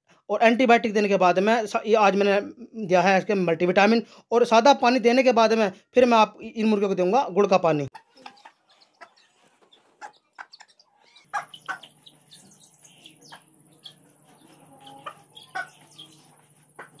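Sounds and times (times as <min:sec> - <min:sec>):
chicks cheeping: 0:07.9 - 0:17.0
hen clucking: 0:07.9 - 0:17.0.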